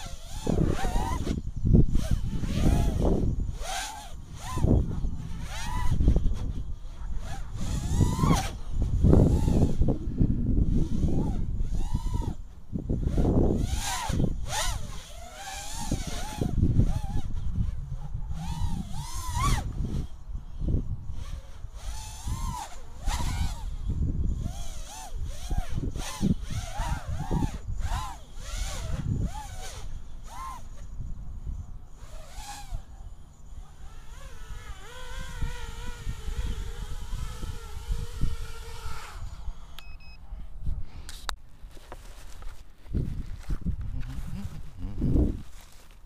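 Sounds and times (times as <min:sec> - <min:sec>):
drone motors whining: 0:00.0 - 0:40.2
wind rumble on microphone: 0:00.0 - 0:46.0
brief beep: 0:39.8 - 0:40.2.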